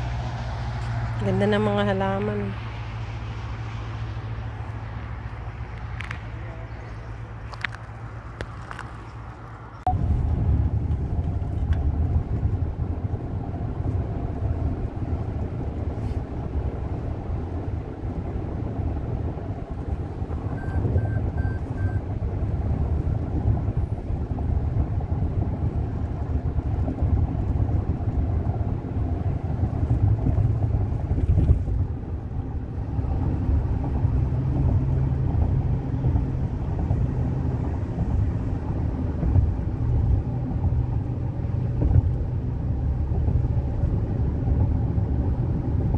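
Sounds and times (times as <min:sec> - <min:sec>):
car road and engine rumble: 0:00.0 - 0:45.9
short beeps: 0:20.5 - 0:22.0.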